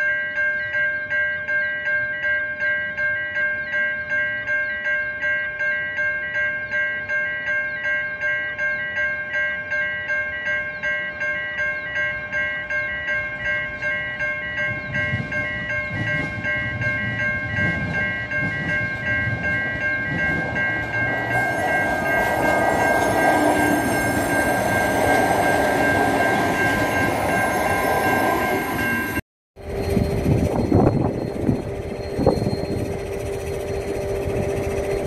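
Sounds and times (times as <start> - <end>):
level crossing warning bells: 0.0 - 35.0
train rumbling past: 12.2 - 35.0.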